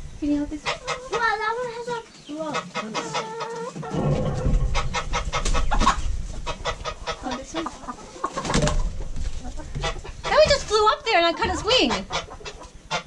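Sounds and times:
chickens clucking and squawking: 0.0s - 13.0s
low rumble: 3.9s - 7.1s.

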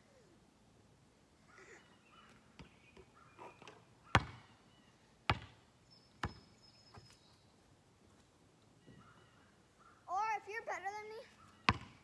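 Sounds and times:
basketball bouncing on asphalt: 2.6s - 3.1s, 4.1s - 4.5s, 5.3s - 5.6s, 6.2s - 7.1s, 11.6s - 12.0s.

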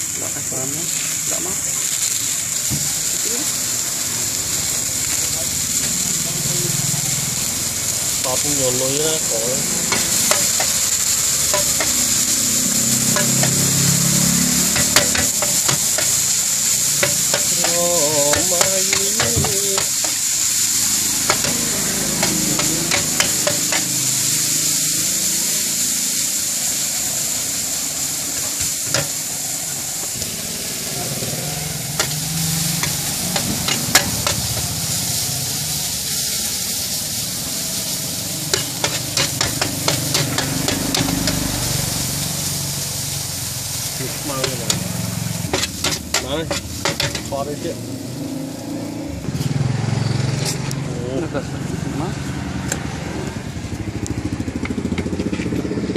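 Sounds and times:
noodles sizzling in hot oil: 0.0s - 55.9s
metal spatula scraping a wok: 9.6s - 24.4s, 30.1s - 35.0s, 37.8s - 41.8s, 44.2s - 47.4s.

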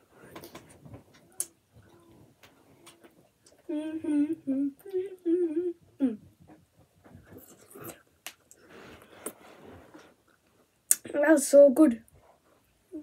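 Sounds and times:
boy humming: 2.8s - 6.4s.

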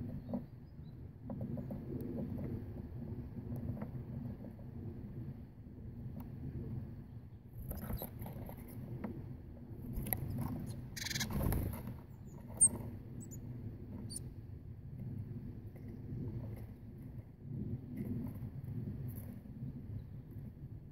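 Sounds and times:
low wind rumble on microphone: 0.0s - 20.9s
bird wing flutters: 9.9s - 12.8s
high thin bird calls: 10.6s - 11.3s.

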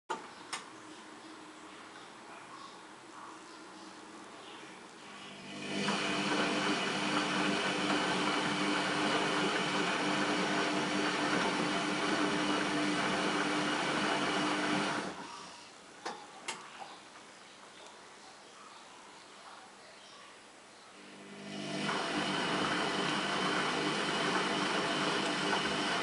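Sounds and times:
washing machine drum turning: 21.7s - 26.0s.

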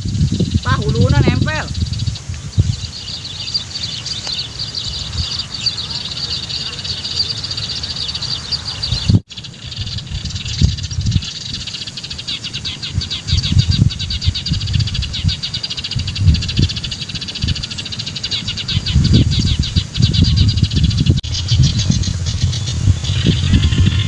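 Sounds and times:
small birds chirping: 0.0s - 24.0s
low rumbles: 7.4s - 24.0s.

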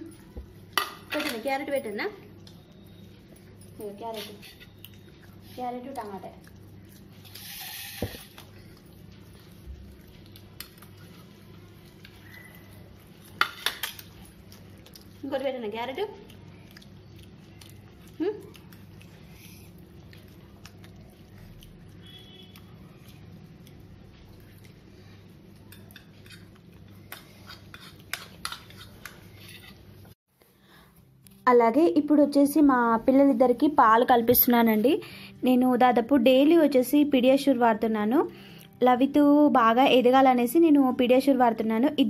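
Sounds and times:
metal spoon scraping a plate: 7.2s - 8.3s, 27.1s - 29.9s.

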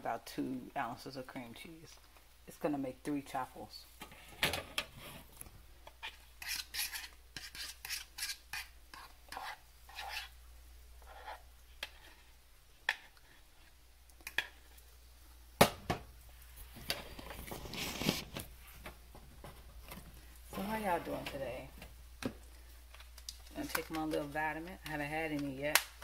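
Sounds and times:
fork scraping plastic bowl: 5.9s - 10.3s.

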